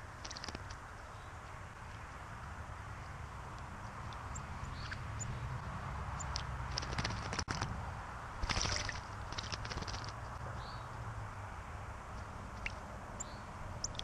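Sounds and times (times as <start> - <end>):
bird wings fluttering: 0.2 - 0.8, 6.7 - 7.8, 8.4 - 10.2
bird splashing in water: 6.3 - 7.8, 8.4 - 10.2.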